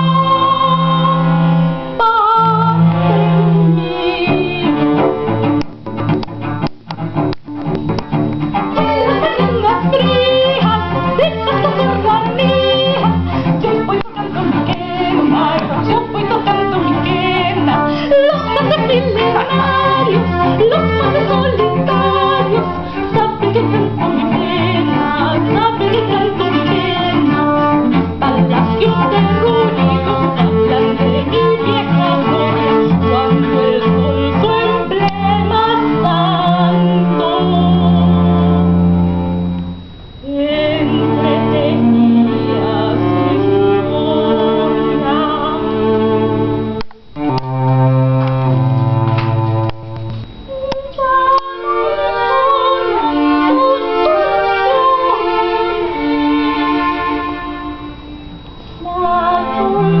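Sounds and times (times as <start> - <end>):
woman singing: 0.0 - 5.2, 8.7 - 38.8, 40.2 - 46.8, 50.5 - 58.0, 58.8 - 60.0
cello: 0.0 - 60.0
violin: 0.0 - 60.0.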